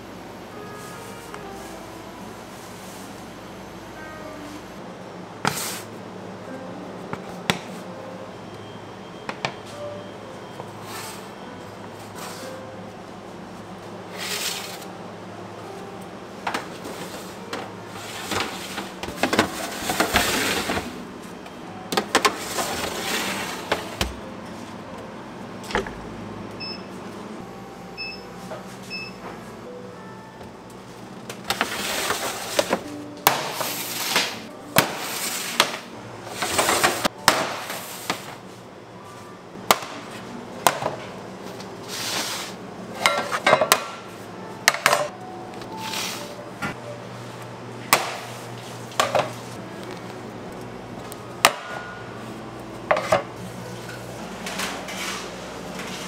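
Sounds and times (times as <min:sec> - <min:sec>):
trays and utensils clicking: 0:39.7 - 0:46.8.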